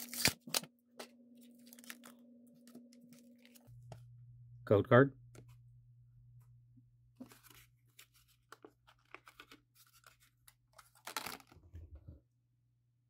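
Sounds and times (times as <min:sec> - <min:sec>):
low steady hum: 0:00.0 - 0:11.0
plastic packaging crinkling: 0:01.5 - 0:03.6, 0:10.8 - 0:11.6.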